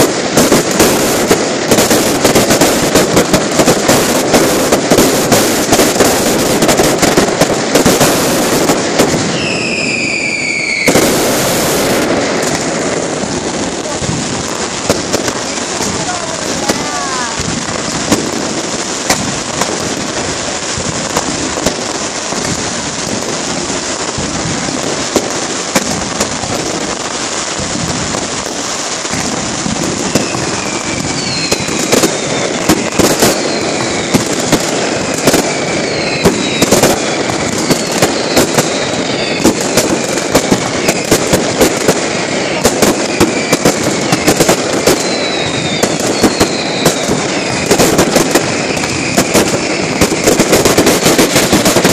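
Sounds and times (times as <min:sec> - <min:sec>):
firework whistles falling in pitch: 0:00.0 - 0:12.6, 0:29.1 - 0:51.9
firecrackers crackling: 0:00.0 - 0:51.9
loud sharp firework bangs: 0:00.0 - 0:51.9.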